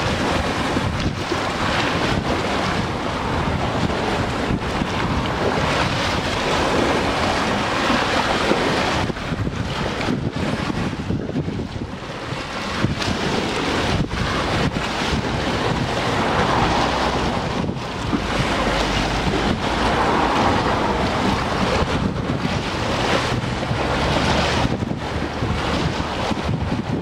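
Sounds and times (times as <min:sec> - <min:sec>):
choppy water: 0:00.0 - 0:27.0
wind buffeting microphone: 0:00.0 - 0:27.0.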